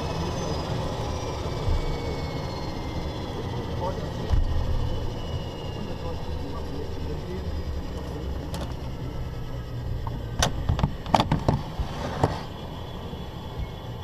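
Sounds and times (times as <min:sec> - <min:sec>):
turboprop engines droning: 0:00.0 - 0:14.0.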